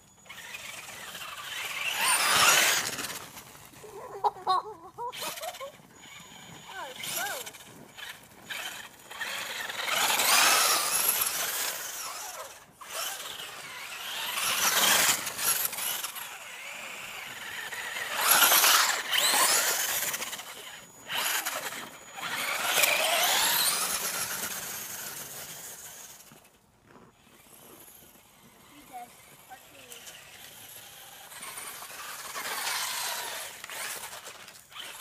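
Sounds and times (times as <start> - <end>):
rc buggy motor whining: 0.0 - 35.0.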